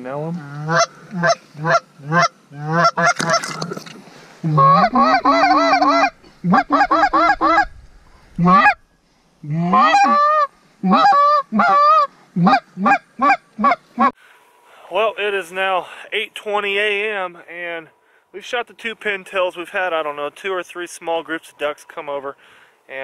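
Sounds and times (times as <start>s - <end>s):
goose call honks and clucks: 0.2s - 3.7s, 4.4s - 7.7s, 8.4s - 8.8s, 9.5s - 14.2s.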